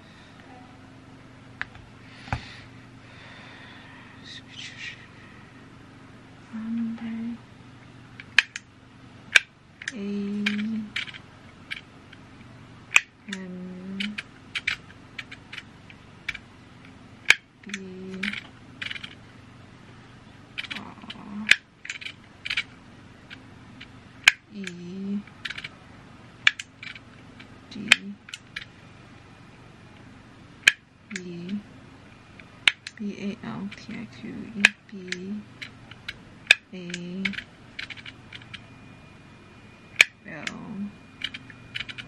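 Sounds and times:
short low tone: 0:00.4 - 0:01.0.

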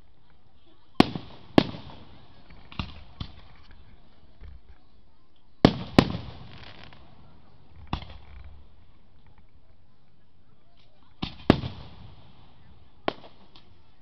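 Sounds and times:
fireworks bursting: 0:00.9 - 0:04.7, 0:05.6 - 0:09.6, 0:10.8 - 0:14.0.

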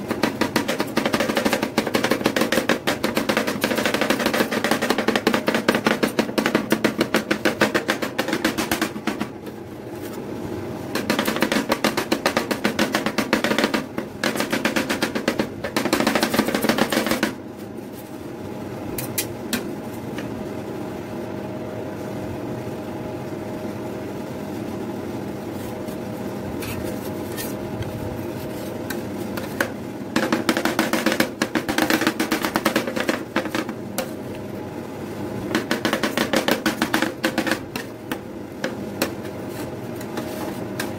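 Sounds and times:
steady hum: 0:00.0 - 0:40.9
metal spatulas chopping on plate: 0:28.4 - 0:34.2, 0:35.5 - 0:40.9.

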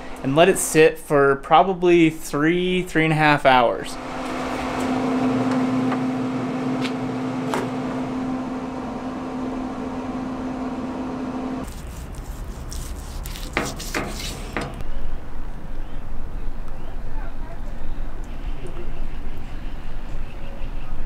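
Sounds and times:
grill fan humming: 0:00.0 - 0:00.8, 0:03.5 - 0:14.9
short scraping: 0:11.6 - 0:14.8.

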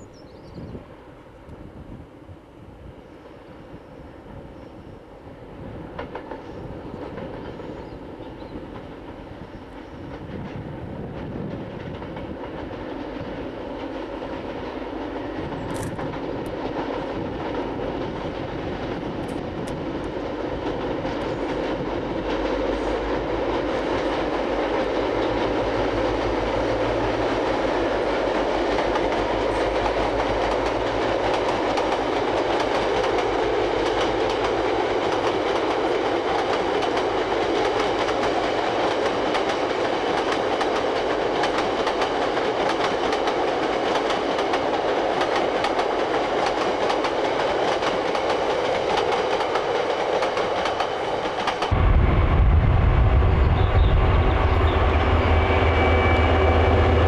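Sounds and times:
diesel locomotive drone: 0:00.0 - 0:57.0
train wheels clattering on rails: 0:05.8 - 0:57.0.

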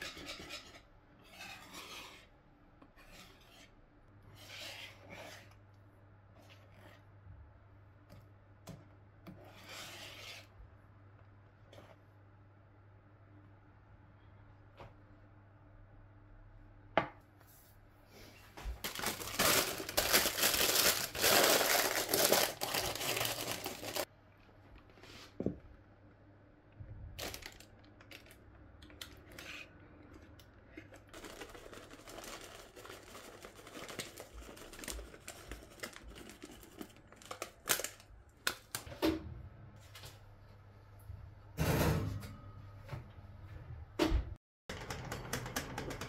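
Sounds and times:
paper crinkling and tearing: 0:18.8 - 0:24.1, 0:27.2 - 0:28.4, 0:31.1 - 0:38.8.

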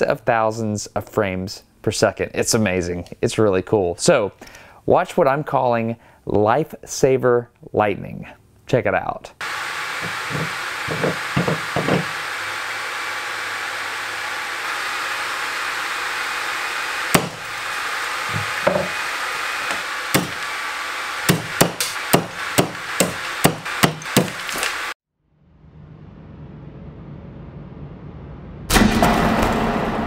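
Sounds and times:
camera cooling fan whir: 0:09.4 - 0:24.9.

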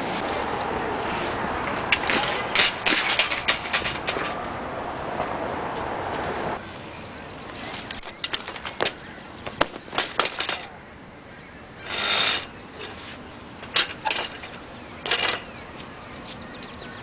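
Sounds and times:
bike clinks and scuffs: 0:00.0 - 0:04.5, 0:05.1 - 0:10.8, 0:11.8 - 0:16.9
bike crashing and scraping on concrete: 0:01.2 - 0:04.5, 0:06.1 - 0:10.8, 0:11.8 - 0:15.6
bike metallic clicks and knocks: 0:01.6 - 0:04.5, 0:07.7 - 0:10.7, 0:13.6 - 0:15.6.

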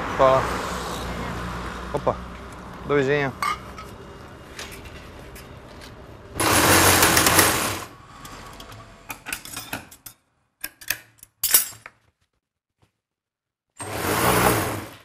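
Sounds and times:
treadle sewing machine stitching: 0:06.4 - 0:07.9, 0:13.8 - 0:15.0.

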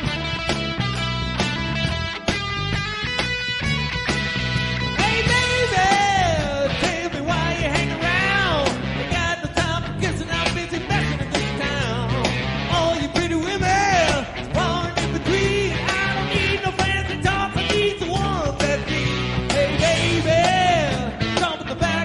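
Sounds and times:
rock and roll band music: 0:00.0 - 0:22.0
person singing: 0:04.9 - 0:22.0.

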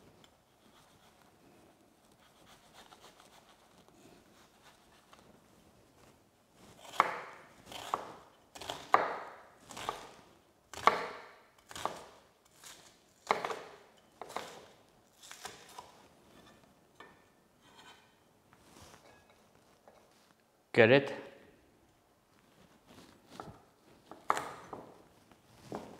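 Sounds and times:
knife chopping on wooden board: 0:06.8 - 0:14.7, 0:24.1 - 0:24.9.

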